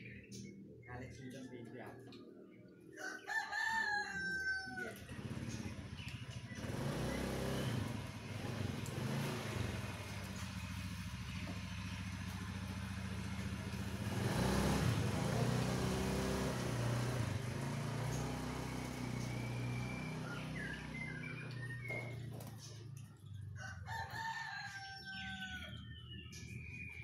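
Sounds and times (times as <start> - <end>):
vehicle engine running: 5.0 - 23.9.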